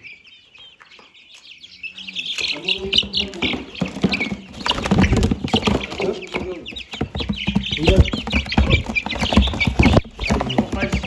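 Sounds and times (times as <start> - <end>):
chicks peeping: 0.0 - 11.0
chicken feed pouring into feeders: 2.4 - 11.0.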